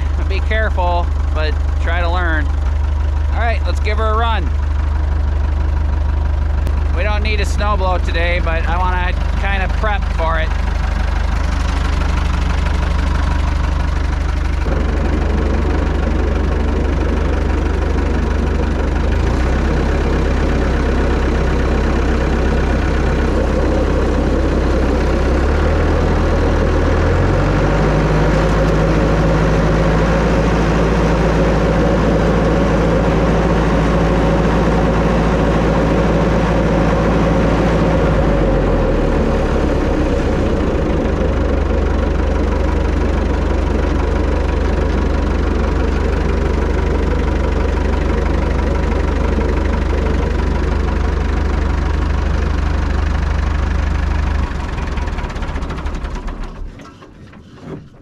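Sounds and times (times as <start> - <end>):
snowblower spinning: 0.0 - 58.0
tractor engine revving: 0.0 - 58.0.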